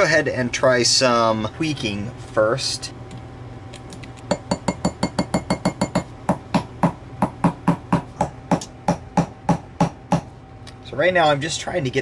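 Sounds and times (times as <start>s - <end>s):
hammer tapping on metal: 4.3s - 10.3s.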